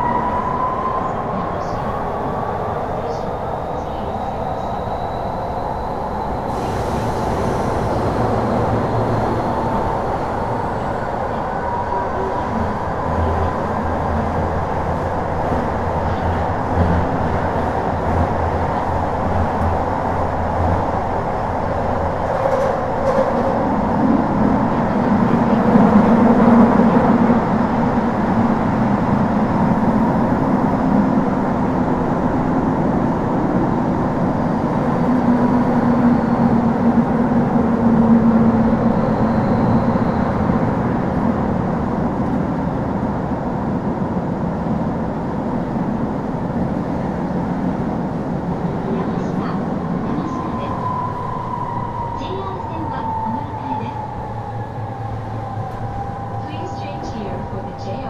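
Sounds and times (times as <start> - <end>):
subway train running: 0.0 - 58.0.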